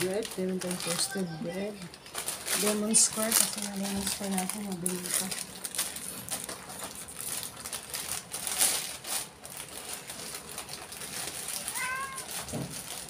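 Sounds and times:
plastic packets rustling: 0.0 - 13.0
cat meowing: 11.6 - 12.4.

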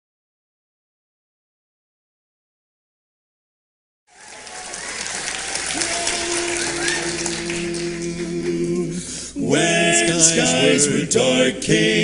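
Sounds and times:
audience applauding: 4.1 - 8.8
vocal quartet holding low chord: 5.6 - 12.0.

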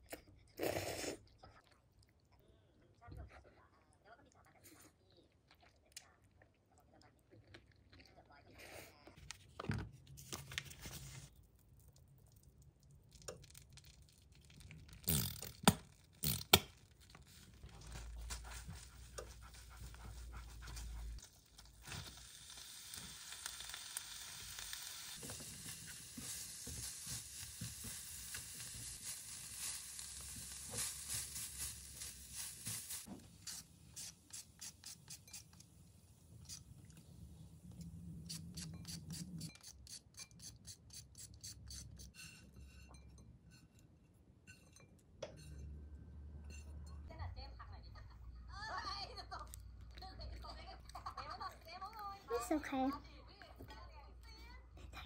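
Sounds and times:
chicken sizzling in a frying pan: 21.5 - 33.1.

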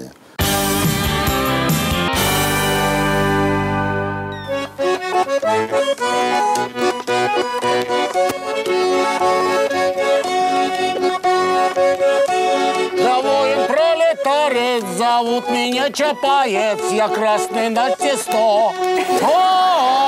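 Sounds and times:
held chord of theme music: 0.4 - 6.4
accordion playing a folk tune: 0.4 - 20.0.

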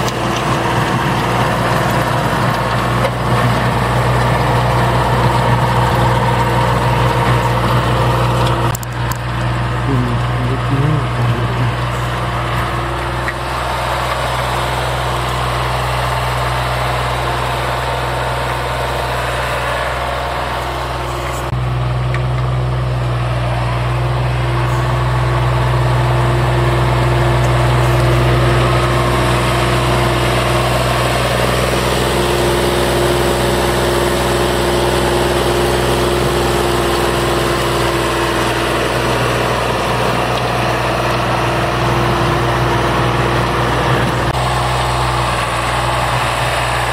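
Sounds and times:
tractor diesel engine under load: 0.0 - 46.9.

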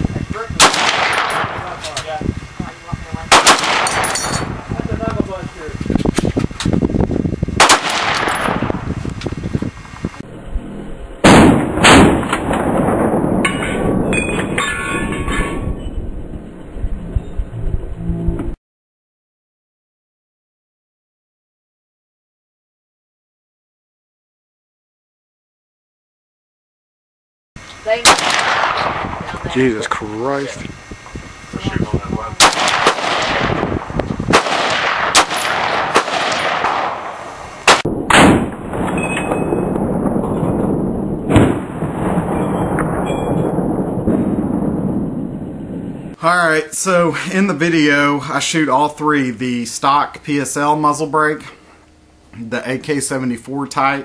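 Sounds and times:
rifle shots: 0.6 - 1.8, 3.3 - 4.8, 7.6 - 8.9, 11.2 - 13.9, 28.0 - 29.4, 32.4 - 39.6, 41.2 - 42.5.

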